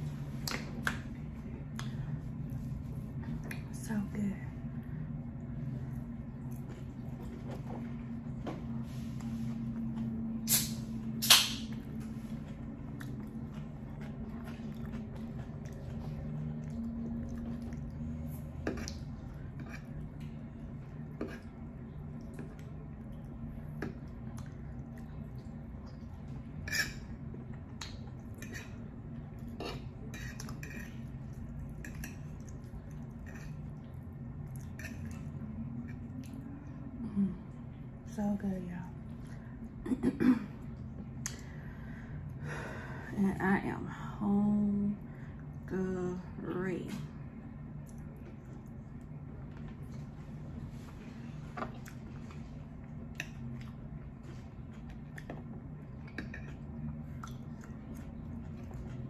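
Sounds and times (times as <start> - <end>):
steady low hum: 0.0 - 59.0
chewing sounds: 12.4 - 37.0, 51.5 - 59.0
fork scraping a plate: 26.6 - 27.1, 29.6 - 31.1.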